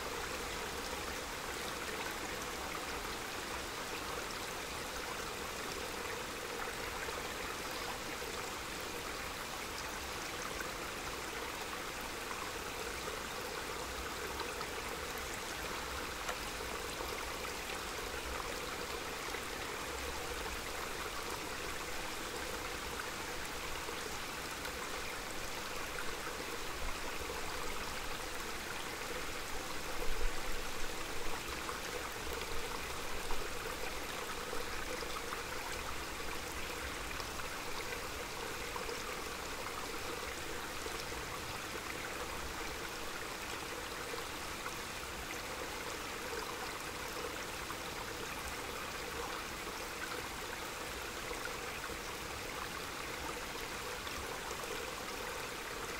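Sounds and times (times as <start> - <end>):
stream babbling: 0.0 - 55.9.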